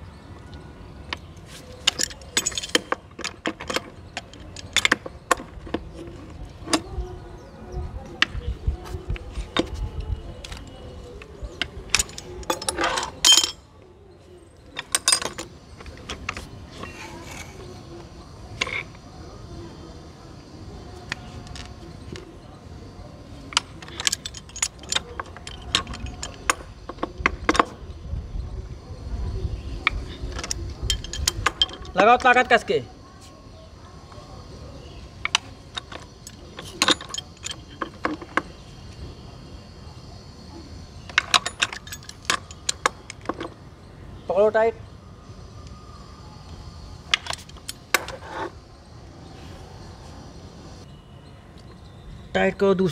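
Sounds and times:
metal wrenches clinking: 1.1s - 6.9s, 11.5s - 13.7s, 14.6s - 17.8s, 23.4s - 27.8s, 29.8s - 32.6s, 35.2s - 38.5s, 41.1s - 43.6s, 47.1s - 48.5s.

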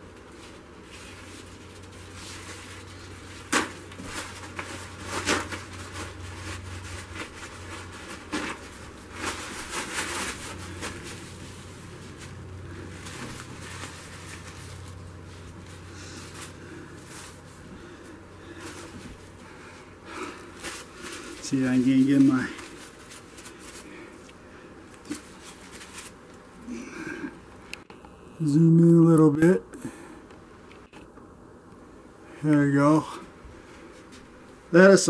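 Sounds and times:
rustling: 0.0s - 27.8s
steady low hum: 0.0s - 35.0s.

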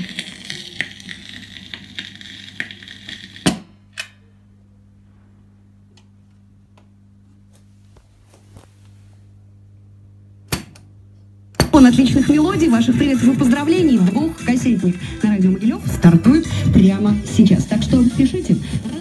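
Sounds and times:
vinyl record playing with crackle: 0.0s - 3.7s, 11.8s - 19.0s
amplifier hum: 0.0s - 19.0s.

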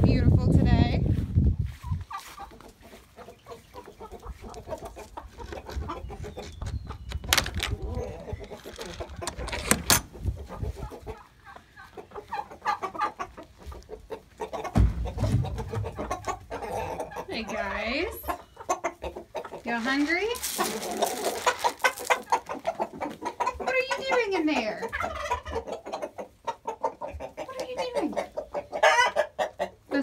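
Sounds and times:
chickens clucking: 0.0s - 30.0s
sharp clicks: 6.6s - 10.1s
low thump: 14.7s - 16.4s.

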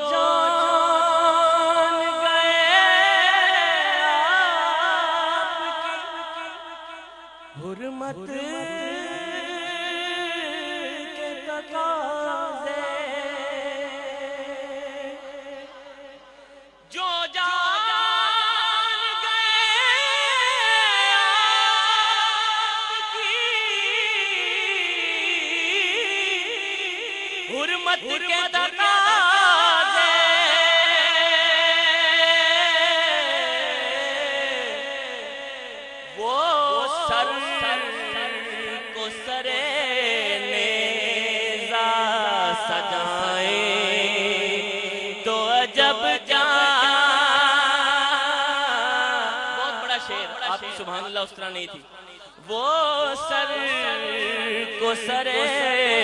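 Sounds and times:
man singing unaccompanied: 0.0s - 56.0s.

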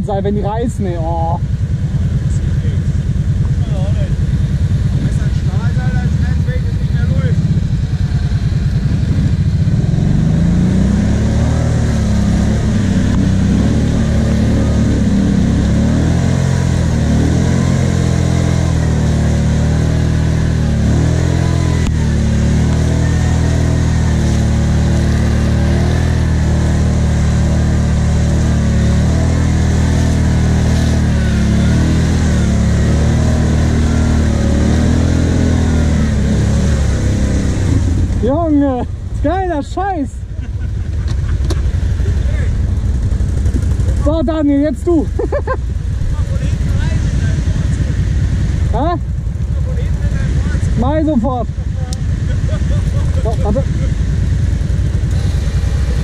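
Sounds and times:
atv engines revving under load: 0.0s - 56.0s.

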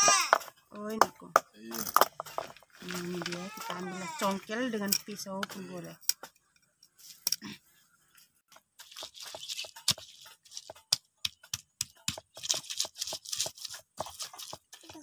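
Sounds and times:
pestle crushing in stone mortar: 0.0s - 4.0s, 8.7s - 15.0s.

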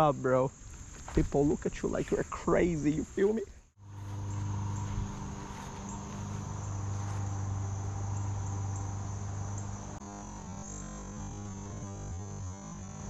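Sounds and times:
insects trilling: 0.0s - 13.0s
steady low hum: 0.0s - 13.0s.

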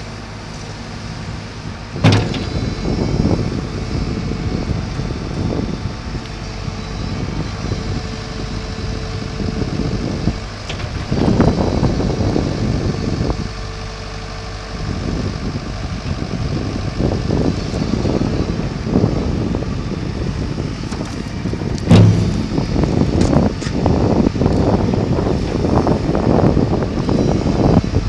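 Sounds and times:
excavator diesel engine: 0.0s - 28.0s
steady tone: 21.9s - 23.3s.

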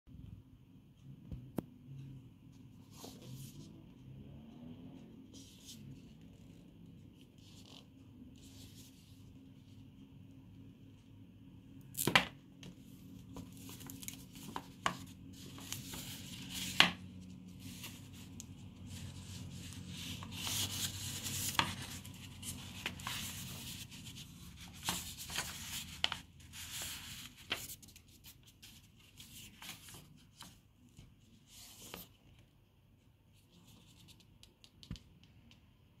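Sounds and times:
book pages riffling: 13.3s - 30.6s.

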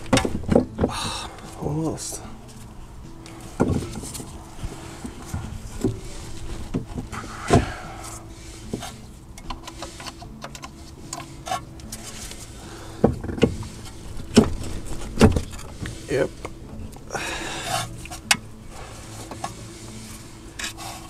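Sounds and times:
car suspension clunks and knocks: 0.0s - 1.2s, 3.3s - 4.4s, 5.0s - 7.8s, 12.9s - 16.8s.

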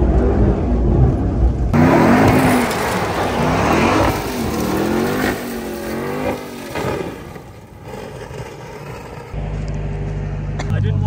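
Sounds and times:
truck engine revving: 0.0s - 10.7s
tyres spinning on gravel: 1.8s - 10.4s.

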